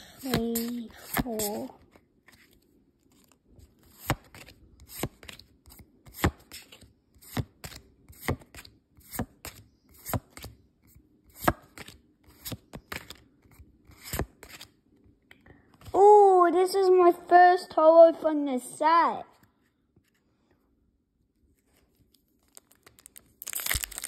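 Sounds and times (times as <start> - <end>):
cards being flipped: 0.3 - 10.6, 11.4 - 13.3, 13.9 - 14.8, 21.6 - 24.0.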